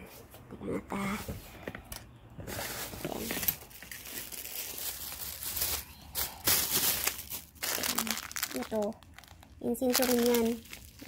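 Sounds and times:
plastic packaging crinkling: 2.5s - 11.0s.

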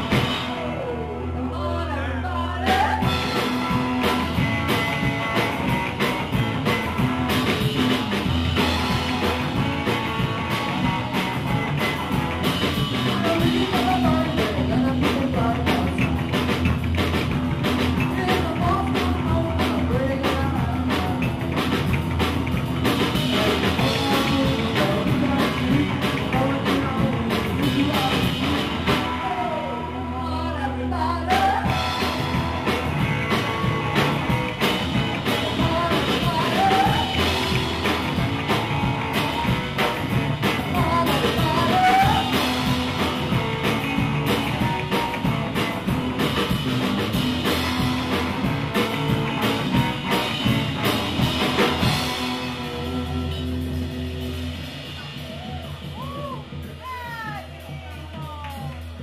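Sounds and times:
person singing: 0.0s - 5.8s, 10.5s - 16.7s, 18.0s - 21.7s, 23.1s - 45.7s, 47.4s - 53.9s
drum kit: 0.0s - 59.0s
electric guitar: 0.0s - 59.0s
upright bass: 0.0s - 59.0s.

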